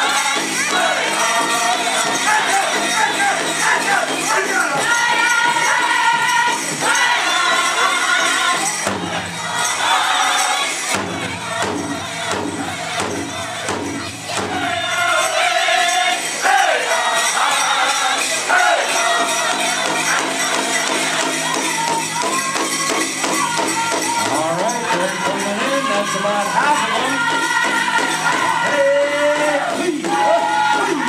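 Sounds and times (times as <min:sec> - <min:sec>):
group singing in high voices: 0:00.0 - 0:31.0
jingling bells: 0:00.0 - 0:31.0
steady beat on a big drum: 0:08.5 - 0:09.6, 0:10.9 - 0:14.9.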